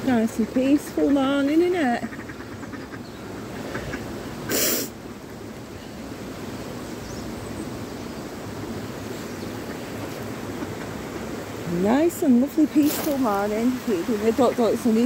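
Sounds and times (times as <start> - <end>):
river hiss: 0.0 - 15.0
sharp burst of breathy noise: 4.4 - 5.0.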